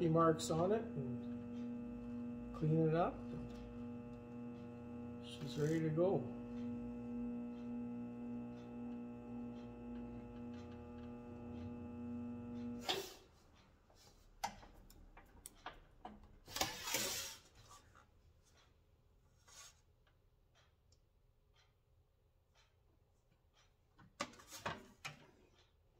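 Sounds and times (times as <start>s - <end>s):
bead roller motor humming: 0.0s - 13.2s.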